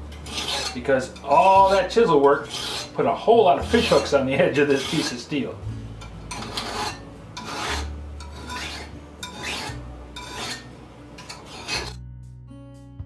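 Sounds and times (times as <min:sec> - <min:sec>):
hand file stroking steel: 0:00.1 - 0:12.0.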